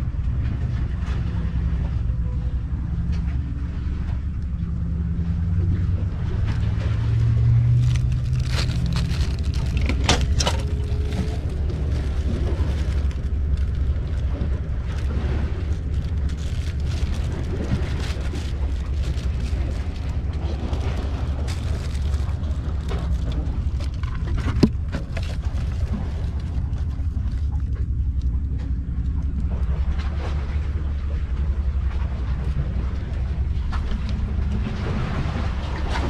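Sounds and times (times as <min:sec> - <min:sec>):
low rumble: 0:00.0 - 0:36.0
rustles and light clicks: 0:06.4 - 0:30.4.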